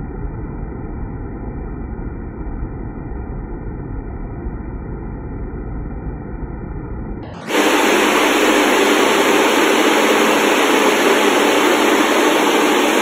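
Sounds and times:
water spraying inside a tank: 7.3s - 13.0s.

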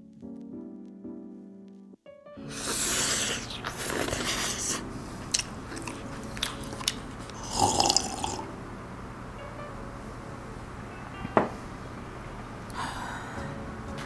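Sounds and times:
noodles slurping: 2.5s - 8.4s
chewing: 2.9s - 8.4s.

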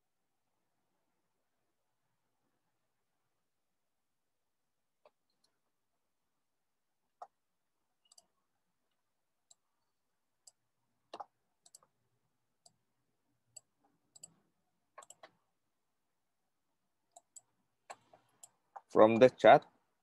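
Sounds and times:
keyboard and mouse clicks: 8.0s - 8.4s, 10.4s - 12.0s, 13.5s - 15.4s, 17.1s - 19.3s.

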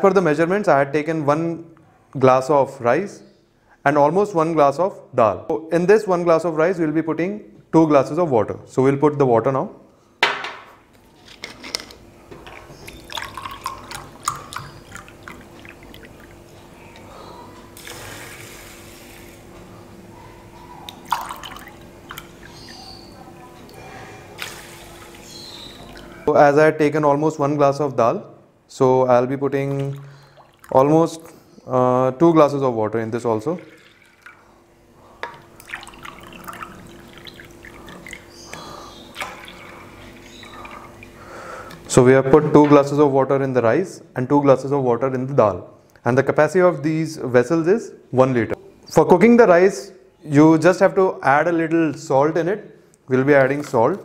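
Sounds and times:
water dripping and clinking: 12.4s - 17.1s, 20.9s - 23.8s, 33.6s - 34.4s, 35.2s - 38.3s
water pouring onto rice: 33.6s - 34.4s.

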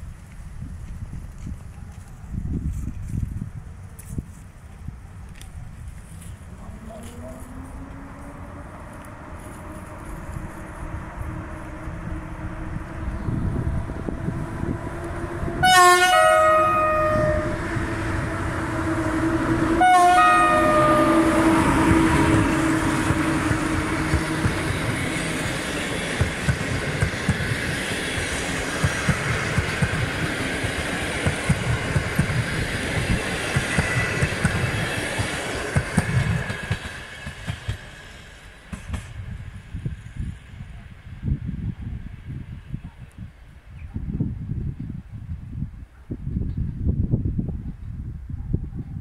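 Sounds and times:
locomotive horn blasts: 15.6s - 24.1s
train wheels clacking over rail joints: 21.6s - 39.2s.

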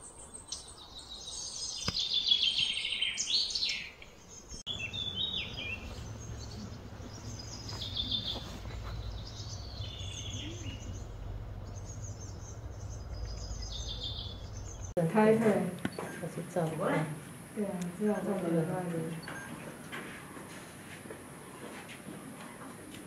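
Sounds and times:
birds chirping: 0.0s - 22.9s
low background rumble: 4.7s - 15.8s.

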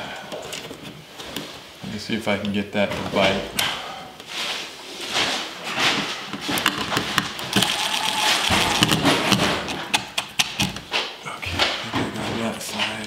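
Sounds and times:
rapid clicking of impact driver: 7.2s - 10.9s
impact driver running in bursts: 7.4s - 9.5s.

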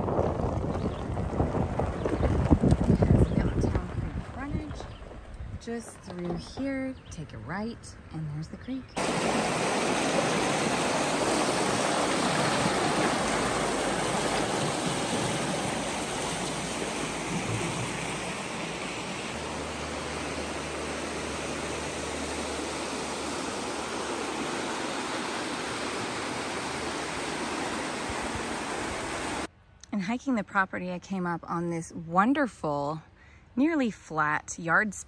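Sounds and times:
creek rushing over rocks: 9.0s - 29.5s.

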